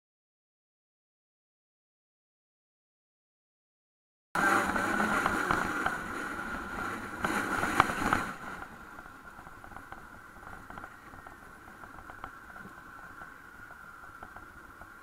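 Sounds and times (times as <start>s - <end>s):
traffic running noise: 4.4s - 15.0s.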